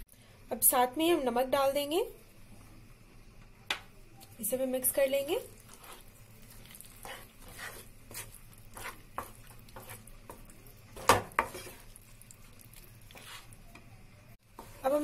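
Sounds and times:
spatula scraping a pan: 5.4 - 12.1, 13.0 - 13.6.

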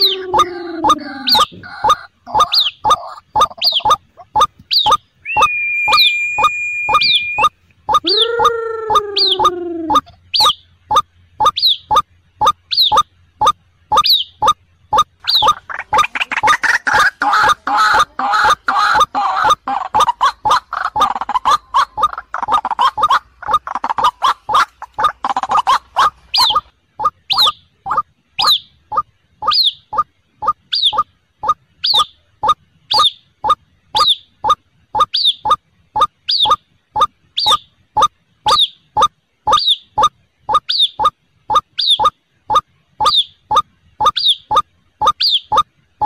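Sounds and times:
waterhen calls: 0.0 - 12.0, 15.0 - 32.1
steady high tone: 5.3 - 10.1.

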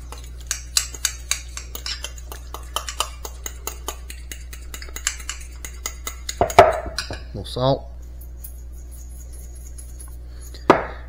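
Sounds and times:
fork clinking against glass bowl: 0.1 - 7.3.

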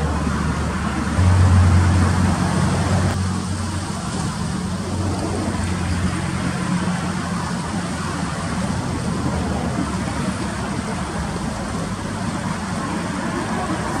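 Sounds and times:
river rushing over riffles: 0.0 - 14.0
low hum: 0.1 - 6.3.

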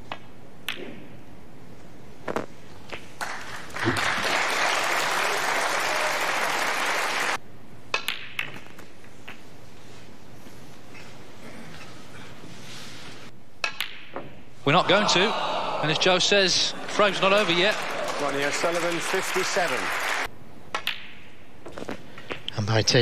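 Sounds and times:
audience applause: 3.2 - 7.4, 14.8 - 20.3.

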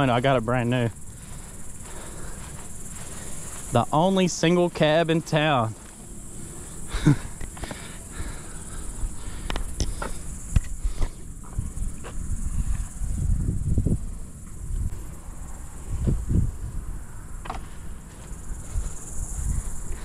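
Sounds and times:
insects droning: 0.0 - 20.0
wind rumble on microphone: 8.1 - 20.0.

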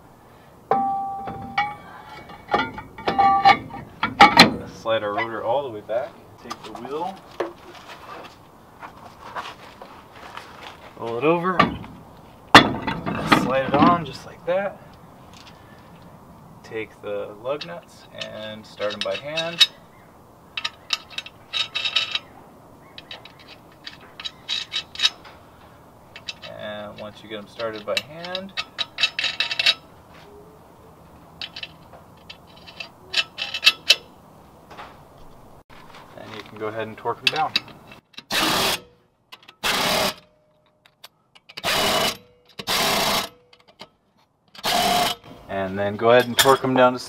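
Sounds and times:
lug nuts clicking and rattling: 0.7 - 5.4, 11.6 - 14.0, 17.6 - 19.8, 20.5 - 30.0, 31.3 - 35.2, 35.8 - 45.3
impact wrench bursts: 41.6 - 43.3, 44.6 - 45.2.

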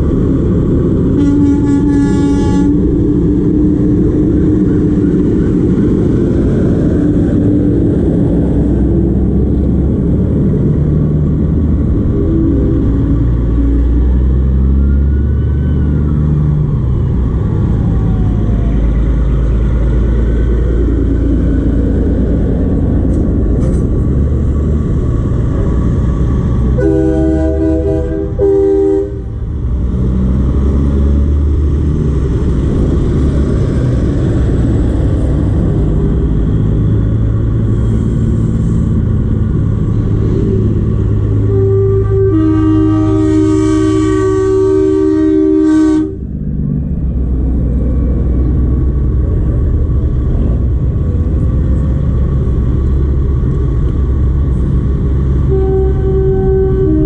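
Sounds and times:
diesel trucks rumbling past: 0.0 - 57.0
multi-tone air horn blast: 1.1 - 2.9, 26.8 - 29.4, 41.3 - 46.3, 55.4 - 57.0.

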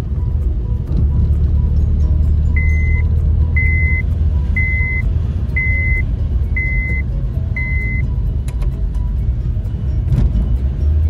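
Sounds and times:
car engine and road noise: 0.0 - 11.0
high beeps: 2.6 - 5.0, 5.6 - 6.0, 6.6 - 8.0.

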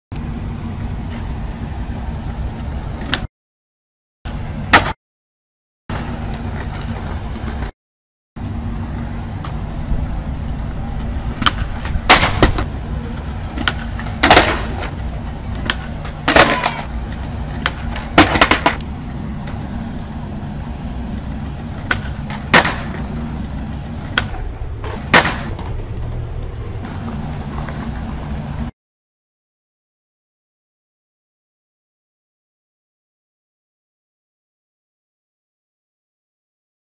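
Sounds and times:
skateboard cracks and slaps: 4.7 - 5.0, 11.3 - 18.8, 21.4 - 26.2
skateboard wheels rolling on stone: 5.9 - 7.7, 8.9 - 28.7.

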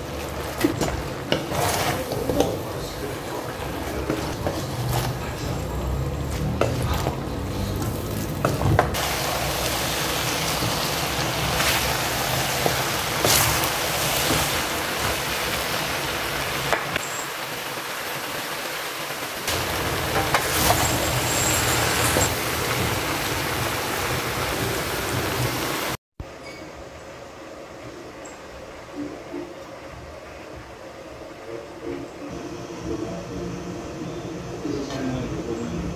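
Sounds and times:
noodles sizzling in a wok: 0.0 - 26.0
wooden spoon scraping a pan: 0.1 - 5.6, 11.5 - 15.2.

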